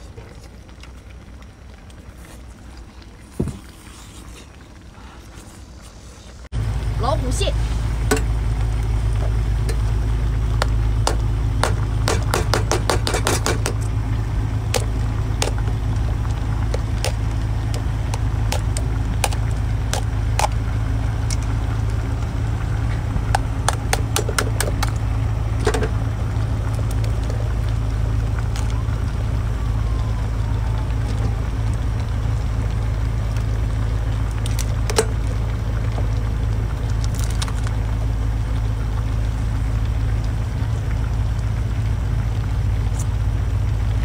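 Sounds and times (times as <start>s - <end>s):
low engine drone: 0.0s - 44.0s
crab shell cracking: 14.7s - 20.6s, 23.3s - 26.0s, 36.9s - 37.8s.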